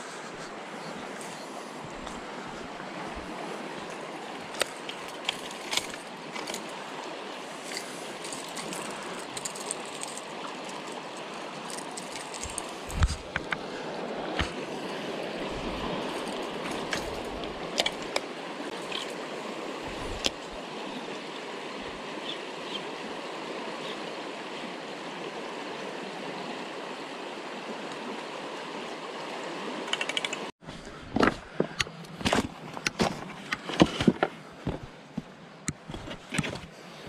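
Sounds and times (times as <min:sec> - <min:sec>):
footsteps on river stones: 0:00.0 - 0:13.7, 0:14.3 - 0:19.2, 0:30.7 - 0:37.0
river water rushing over rocks: 0:00.0 - 0:30.5
faint clicks: 0:29.9 - 0:30.5.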